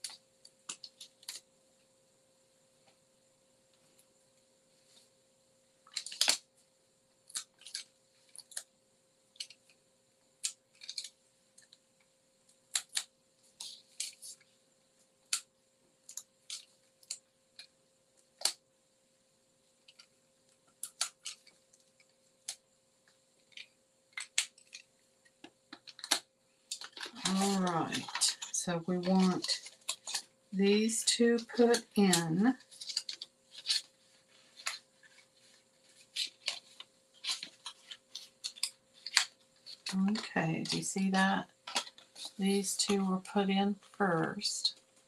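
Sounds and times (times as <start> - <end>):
faint steady hum: 0.0 - 45.0
cardstock being handled and folded: 7.2 - 8.7, 9.4 - 11.8, 12.5 - 18.6, 19.8 - 45.0.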